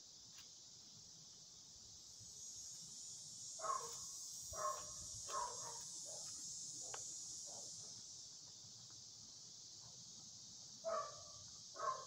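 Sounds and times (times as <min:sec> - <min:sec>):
insects buzzing: 0:00.0 - 0:12.0
dog barking: 0:03.6 - 0:06.3, 0:07.5 - 0:07.9, 0:10.8 - 0:12.0.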